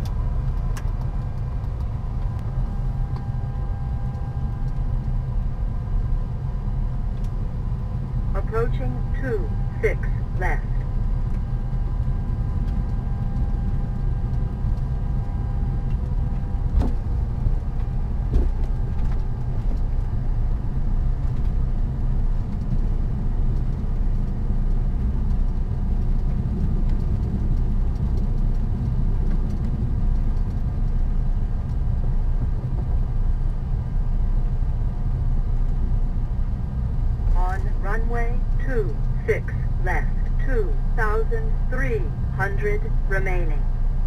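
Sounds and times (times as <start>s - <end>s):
jet engines rumbling while taxiing: 0.0s - 44.0s
faint steady tones: 1.0s - 16.7s, 36.8s - 44.0s.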